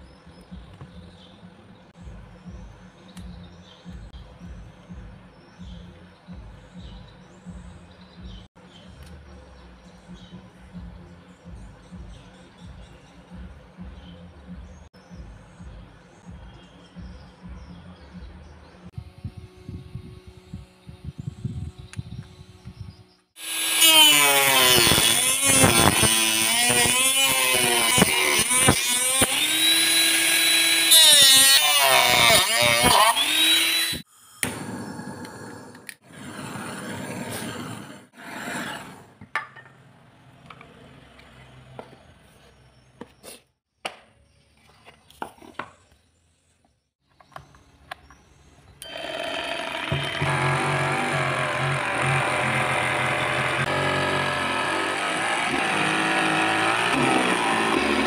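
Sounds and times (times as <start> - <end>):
steady loud hum: 19.0 - 23.0
mini grinder whining: 23.4 - 37.7, 48.8 - 58.0.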